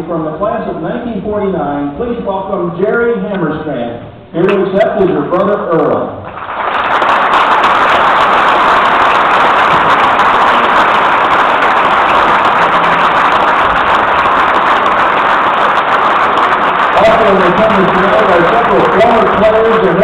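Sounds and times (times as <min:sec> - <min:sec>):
crowd applauding: 0:06.2 - 0:20.0.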